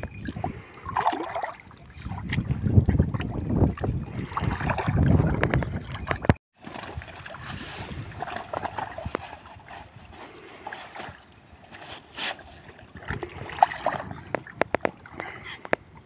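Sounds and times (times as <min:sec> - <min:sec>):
wind rumbling on microphone: 0:00.0 - 0:11.6, 0:12.4 - 0:16.0
water sloshing around wader: 0:00.0 - 0:16.0
small splashes: 0:00.2 - 0:09.8.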